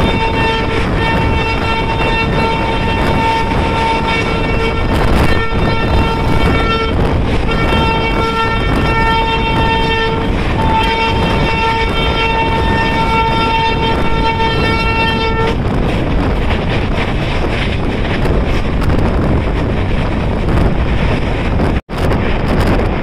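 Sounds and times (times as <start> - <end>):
train horn: 0.0 - 15.6
train rumbling at speed: 0.0 - 23.0.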